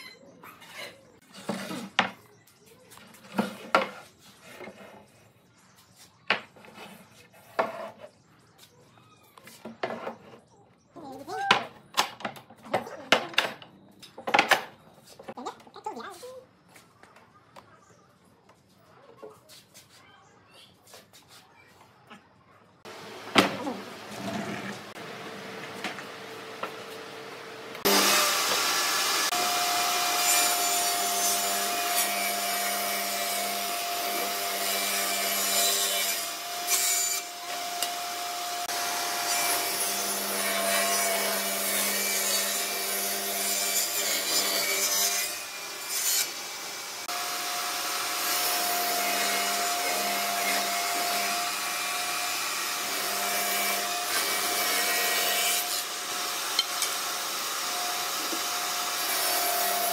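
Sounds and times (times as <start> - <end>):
table saw motor whine: 22.9 - 34.5
saw blade cutting wood: 23.2 - 59.9.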